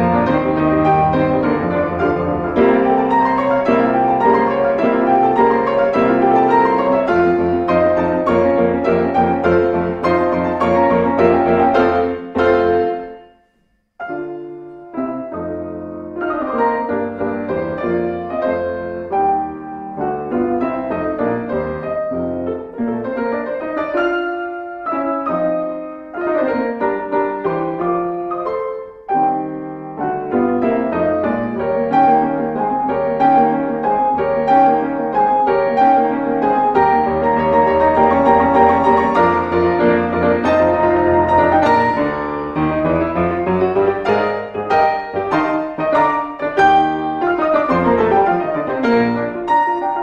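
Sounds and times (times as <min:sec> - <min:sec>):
solo piano music: 0:00.0 - 0:50.0.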